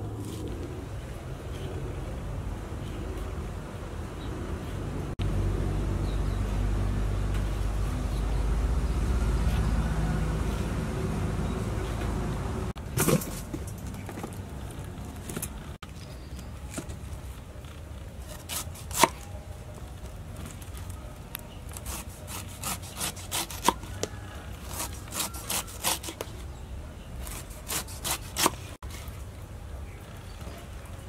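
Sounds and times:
knife slicing pineapple rind: 0:18.2 - 0:19.4, 0:21.6 - 0:26.5, 0:27.2 - 0:29.1.

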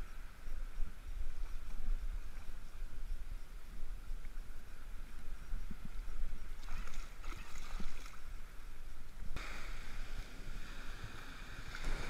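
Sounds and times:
wind rumble on microphone: 0:00.0 - 0:12.0
light water splashes: 0:04.1 - 0:12.0
surf washing over beach: 0:09.4 - 0:12.0.

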